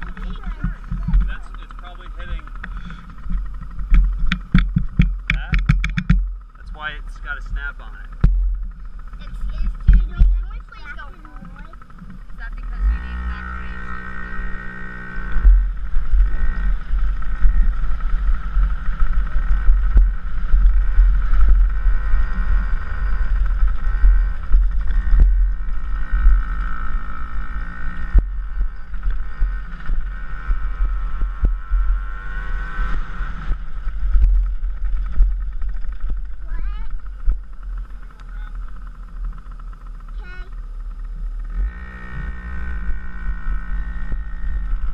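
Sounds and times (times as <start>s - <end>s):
dirt bike engine revving: 0.0s - 44.9s
wind rumble on microphone: 0.0s - 44.9s
knocks from bumps: 2.6s - 6.3s.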